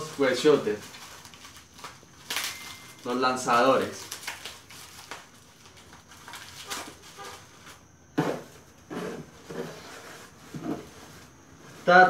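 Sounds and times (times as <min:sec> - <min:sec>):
plastic and paper rustling: 0:00.0 - 0:07.9.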